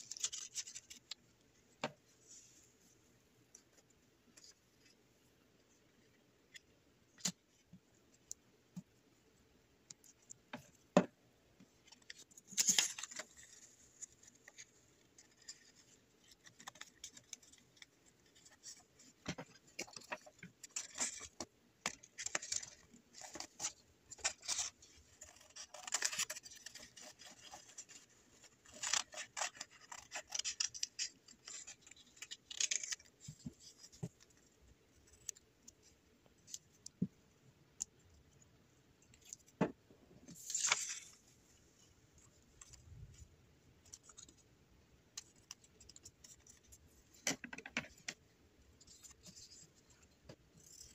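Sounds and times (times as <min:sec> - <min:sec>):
scissors cutting paper: 0:22.2 - 0:33.1
paper rustling: 0:40.3 - 0:43.2.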